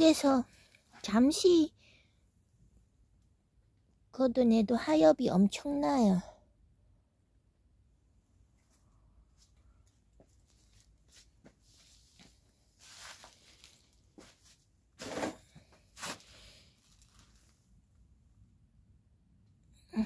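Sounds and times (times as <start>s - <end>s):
scuffing and rustling among plants: 10.2s - 15.3s, 15.9s - 17.6s.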